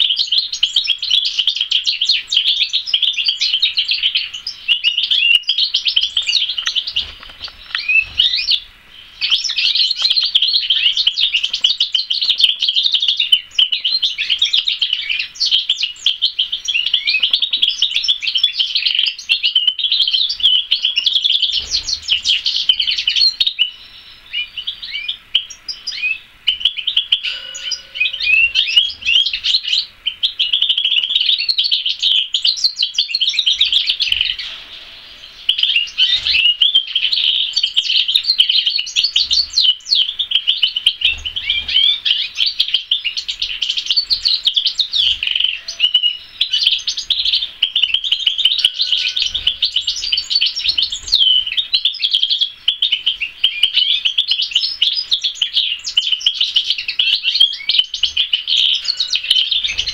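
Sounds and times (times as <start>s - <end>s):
canary singing: 0.0s - 59.9s.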